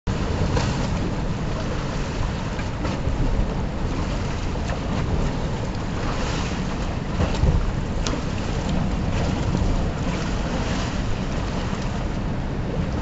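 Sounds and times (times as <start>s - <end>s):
river water rushing and splashing: 0.1s - 13.0s
wind buffeting microphone: 0.1s - 13.0s.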